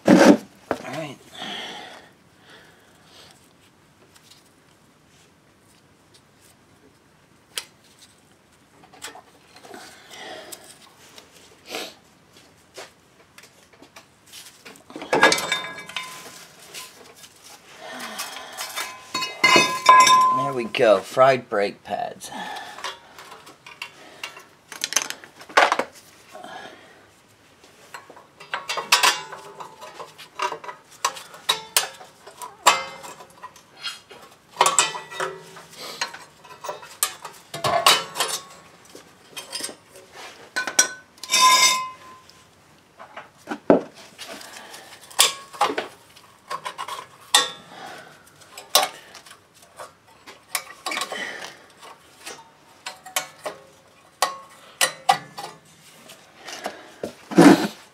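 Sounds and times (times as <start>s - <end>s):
steel tools clinking and scraping: 15.0s - 20.8s, 27.9s - 42.4s, 44.2s - 56.7s.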